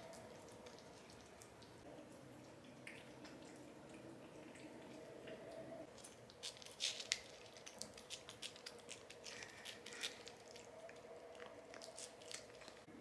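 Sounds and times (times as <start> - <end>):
cat licking: 6.3 - 12.9.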